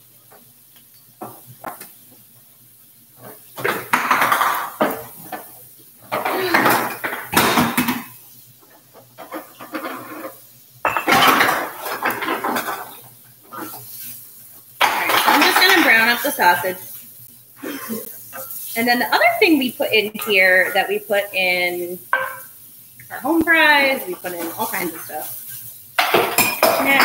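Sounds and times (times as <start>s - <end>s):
dishes and utensils clattering: 3.2s - 8.2s, 9.0s - 13.9s, 14.8s - 16.6s, 26.0s - 27.0s.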